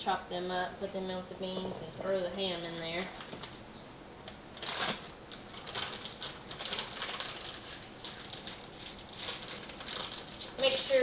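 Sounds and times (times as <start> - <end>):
plastic bag rustling: 4.6 - 11.0.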